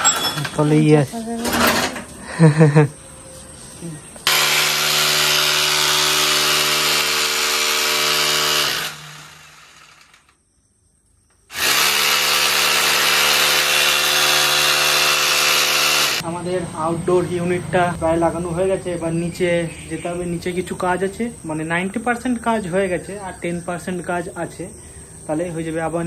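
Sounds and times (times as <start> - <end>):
electric drill boring into masonry: 4.2 - 10.4, 11.5 - 16.2.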